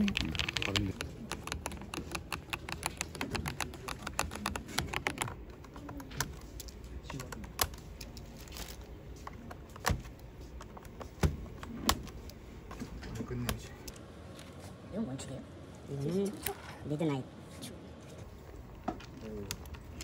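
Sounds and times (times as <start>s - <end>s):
typing on mechanical keyboard: 0.0s - 8.2s.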